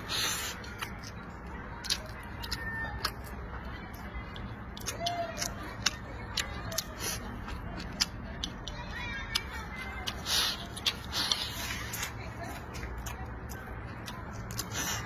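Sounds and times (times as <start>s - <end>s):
wet chewing clicks: 0.0s - 15.0s
slurping food: 10.1s - 12.2s.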